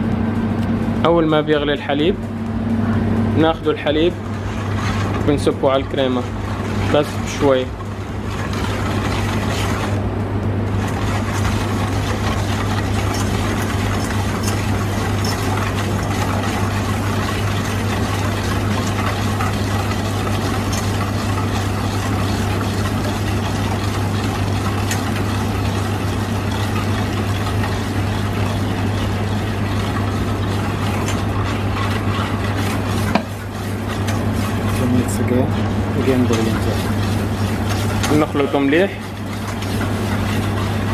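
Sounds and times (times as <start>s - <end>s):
low machine hum: 0.0s - 40.9s
whisk beating in metal bowl: 1.1s - 40.9s
milk pouring: 3.9s - 10.0s, 10.7s - 40.9s
whisk clicking against metal: 10.7s - 34.9s, 35.6s - 40.9s.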